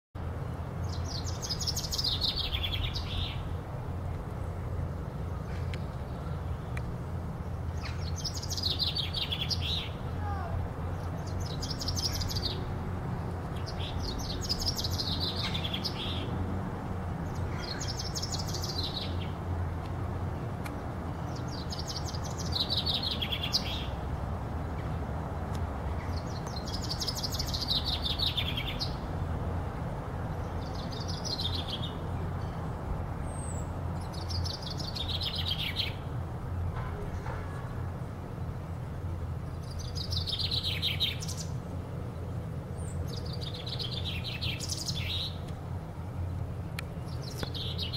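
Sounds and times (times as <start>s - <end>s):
chaffinch singing: 0.8s - 3.5s, 7.5s - 12.7s, 13.5s - 16.4s, 17.2s - 19.4s, 21.2s - 24.0s, 26.0s - 29.0s, 30.3s - 32.6s, 33.2s - 36.1s, 39.5s - 45.5s, 46.1s - 47.9s.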